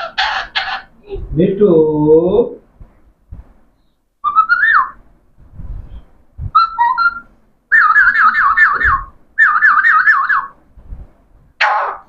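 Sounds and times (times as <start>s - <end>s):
parakeet whistling: 4.2s - 5.0s, 6.6s - 10.6s.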